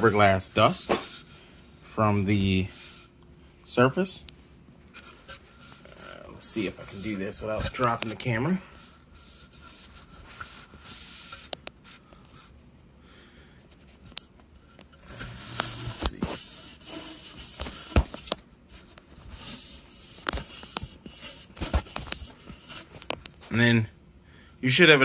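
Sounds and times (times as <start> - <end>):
towel rubbing hiss: 15.2 - 18.2.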